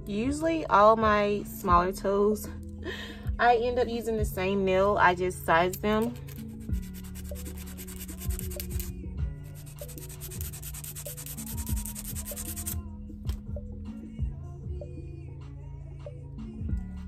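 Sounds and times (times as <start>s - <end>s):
soft background music: 0.0s - 17.0s
nail file scraping plastic: 5.7s - 8.9s, 9.6s - 12.8s.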